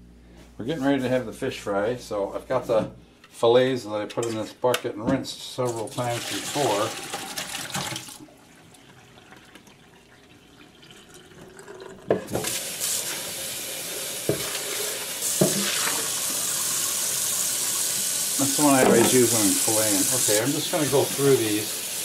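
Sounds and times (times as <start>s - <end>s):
faucet water running: 5.7s - 22.0s.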